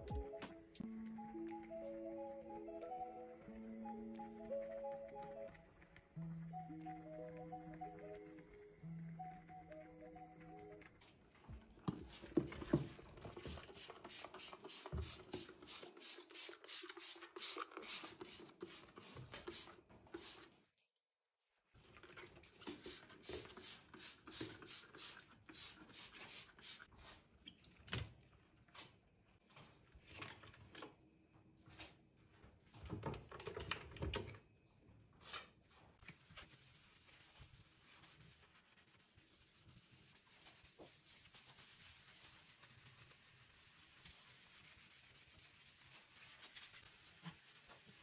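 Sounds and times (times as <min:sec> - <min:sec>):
squeeze bottle puffing powder: 0:13.4 - 0:20.6, 0:22.7 - 0:26.9.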